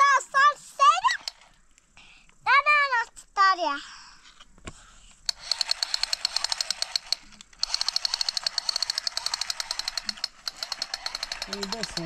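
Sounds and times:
rapid mechanical clicking: 0:05.2 - 0:12.0.

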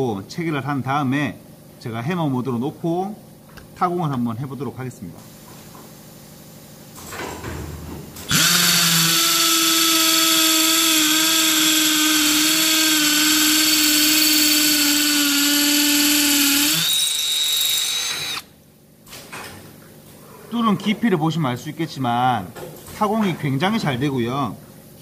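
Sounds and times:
hammer drill boring into concrete: 0:08.3 - 0:18.5.

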